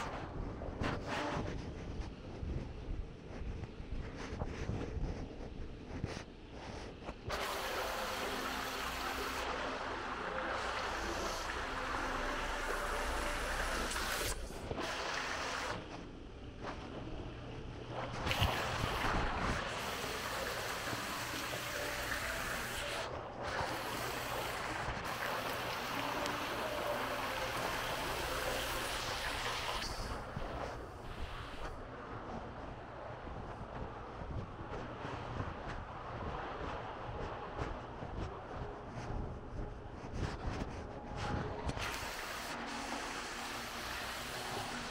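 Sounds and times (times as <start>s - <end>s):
fountain water splashing: 7.4s - 14.4s, 23.6s - 30.3s.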